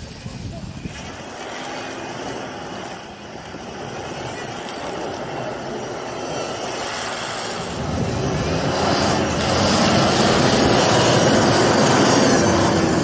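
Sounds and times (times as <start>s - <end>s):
engine pulling hard: 0.0s - 13.0s
tyres churning through snow: 0.0s - 13.0s.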